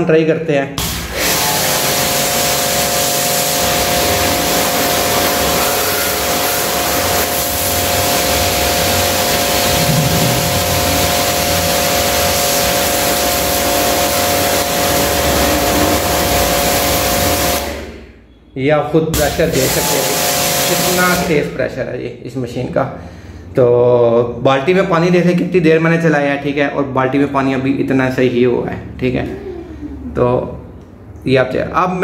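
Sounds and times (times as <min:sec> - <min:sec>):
electric motor tone: 0:00.8 - 0:17.9
pressure washer water jet hiss: 0:00.8 - 0:17.9, 0:19.2 - 0:21.4.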